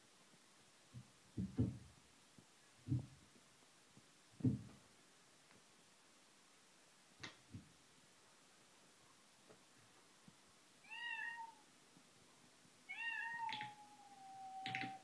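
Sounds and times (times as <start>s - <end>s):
cat meowing: 10.8s - 11.6s, 12.9s - 15.0s.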